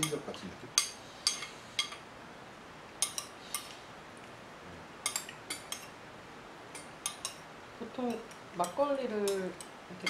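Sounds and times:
cutlery clinking on a plate: 0.8 - 2.0, 3.0 - 3.7.

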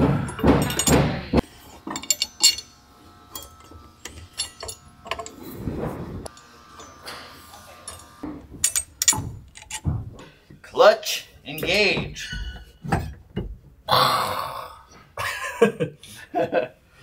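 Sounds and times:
metal tools clinking: 0.2 - 5.5, 6.3 - 10.1, 11.4 - 13.2.

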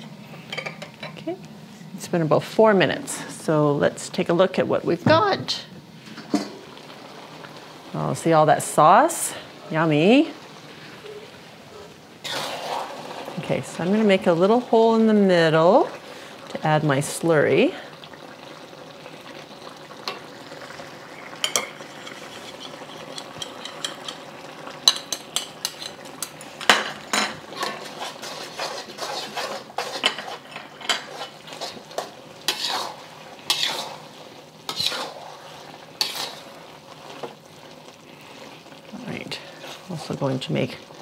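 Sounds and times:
food sizzling in a pan: 0.0 - 41.0
utensil scraping a pan: 12.2 - 14.9, 21.4 - 24.3, 24.9 - 37.4.

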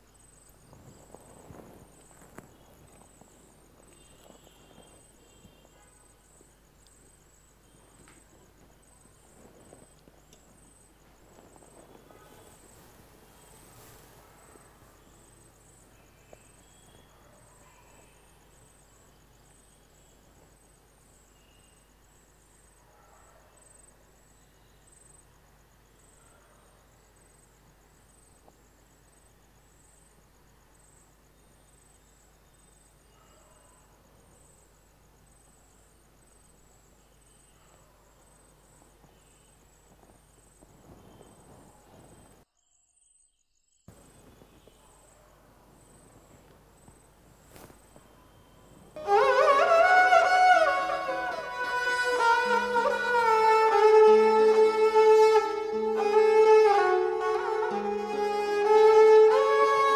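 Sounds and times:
crickets chirping: 0.0 - 59.9.

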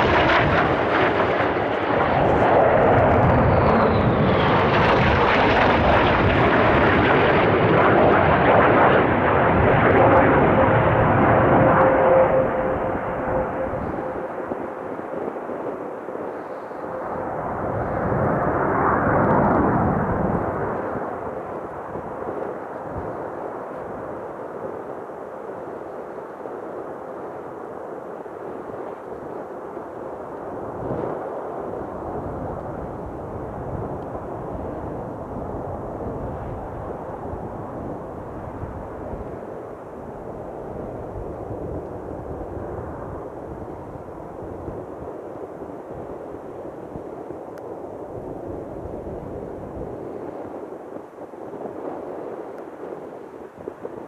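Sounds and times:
high whine falling in pitch: 0.0 - 20.9
fighter jet roaring past: 0.0 - 22.2
steady hum: 9.7 - 18.6.

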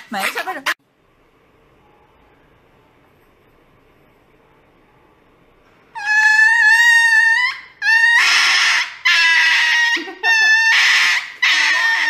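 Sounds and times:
small dog screaming: 6.0 - 12.0.

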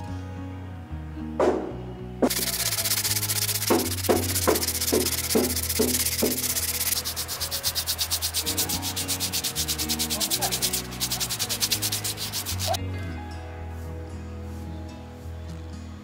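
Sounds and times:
sandpaper rubbing wood: 2.2 - 12.8.

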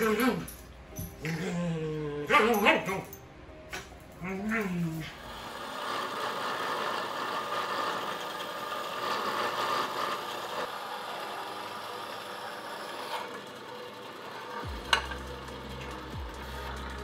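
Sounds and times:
bandsaw cutting metal: 4.5 - 17.0.

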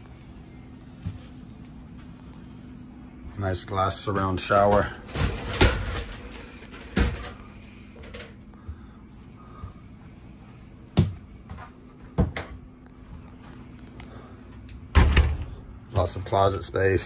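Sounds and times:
glass shower doors sliding: 4.5 - 7.4.

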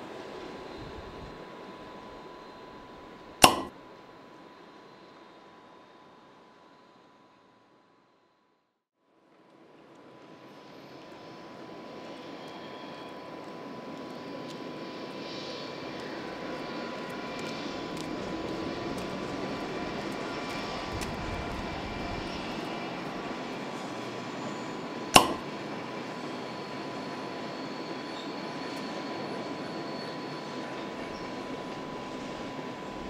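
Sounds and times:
sharp click: 3.4 - 3.7, 25.2 - 25.4
faint wheel squeals: 12.2 - 13.3, 26.1 - 32.6.

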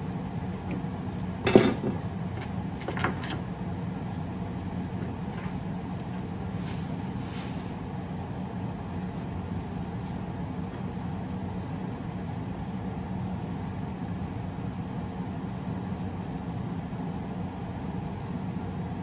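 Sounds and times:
low kitchen hum: 0.0 - 19.0.

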